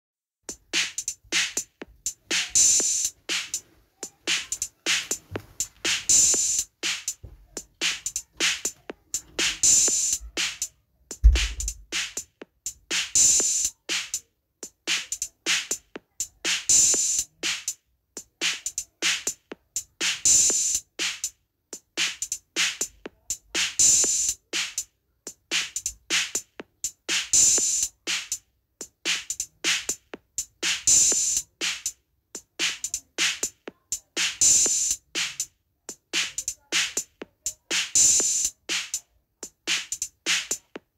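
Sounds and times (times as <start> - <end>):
rhythmic drum beat: 0.4 - 40.9.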